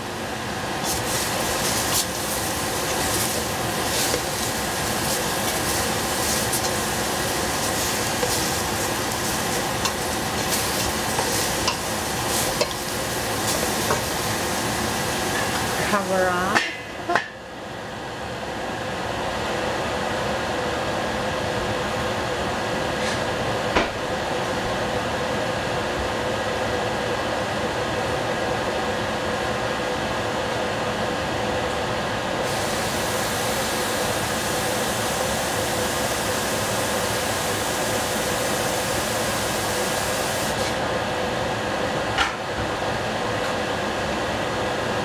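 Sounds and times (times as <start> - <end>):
steam hissing and sizzling: 0.7 - 16.2, 32.4 - 40.8.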